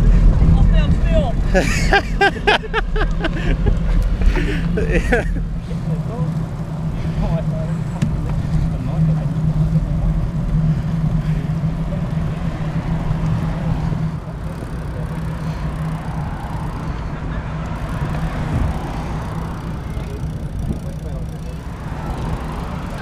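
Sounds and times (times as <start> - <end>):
bicycle tyre and road noise: 0.0 - 23.0
steady low hum: 0.0 - 23.0
wind rushing over microphone: 15.6 - 23.0.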